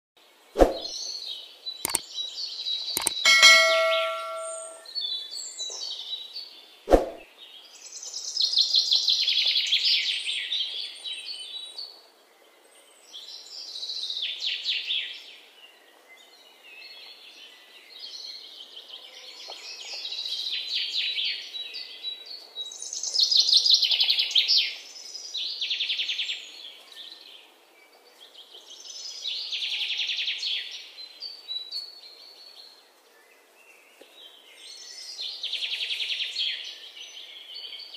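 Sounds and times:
sharp click: 3.0 - 4.8.

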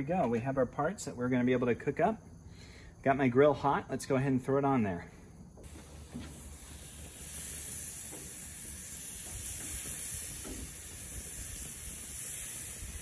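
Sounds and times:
meat sizzling on a grill: 5.6 - 13.0.

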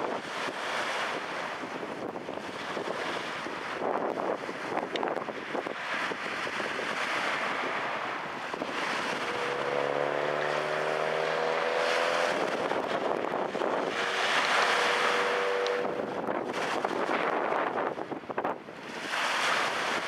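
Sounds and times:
waves splashing against boulders: 0.0 - 20.0
wind buffeting microphone: 0.0 - 20.0
vehicle engine hum: 8.5 - 16.4.

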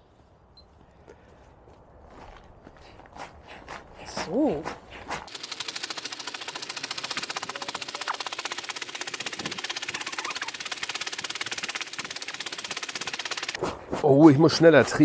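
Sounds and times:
foot pump clicking: 5.1 - 13.6.

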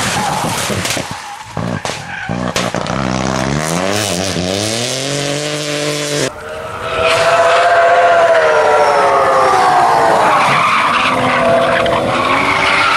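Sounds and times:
rally car engine revving: 0.0 - 8.6.

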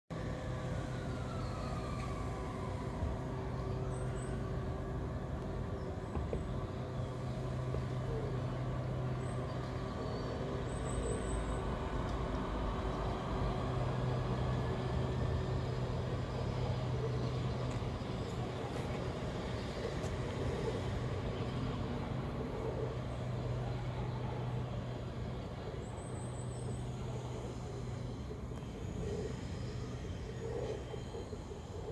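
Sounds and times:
electric train hum and rumble: 0.1 - 31.9
faint rising whine: 0.1 - 31.9.

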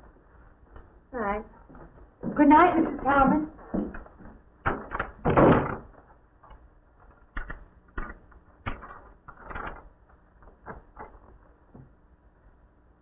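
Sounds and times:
door slamming: 4.8 - 5.9.

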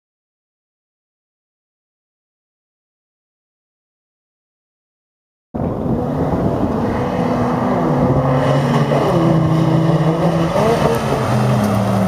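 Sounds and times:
truck engines racing: 5.6 - 12.0.

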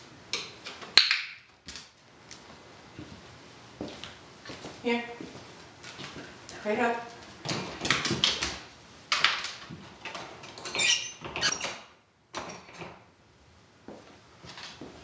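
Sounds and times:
metallic squeak: 10.7 - 11.8.

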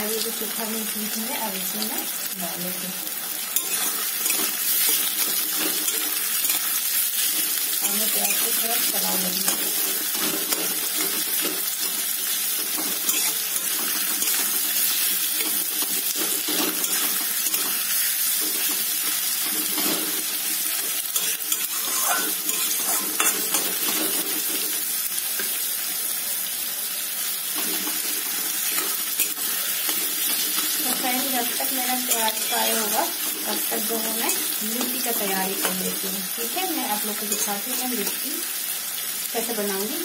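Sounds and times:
onions sizzling in oil: 0.0 - 40.0
metal spatula scraping pan: 3.6 - 8.6, 12.7 - 17.9, 21.2 - 24.5.

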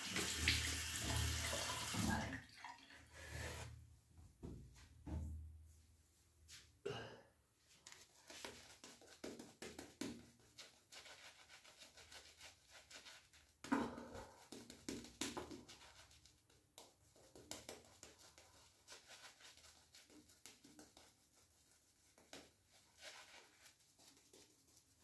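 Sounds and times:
shaving brush swishing through lather: 17.8 - 25.0.

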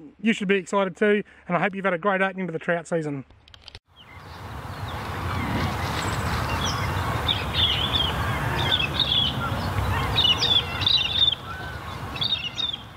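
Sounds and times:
small birds chirping: 3.9 - 12.9.

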